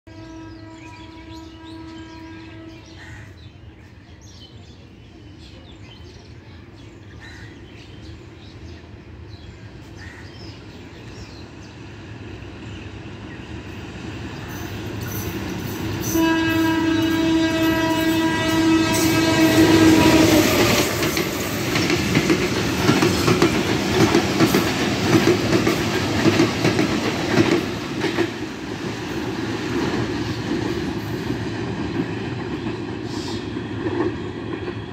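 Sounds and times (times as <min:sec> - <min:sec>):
train horn: 0:00.0 - 0:03.2, 0:16.0 - 0:21.5.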